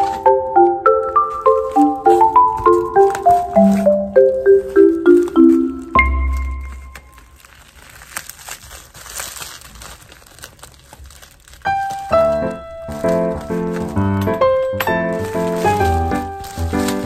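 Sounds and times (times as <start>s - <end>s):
background music: 0.0s - 6.9s, 11.8s - 17.0s
bubble wrap crinkling: 0.0s - 17.0s.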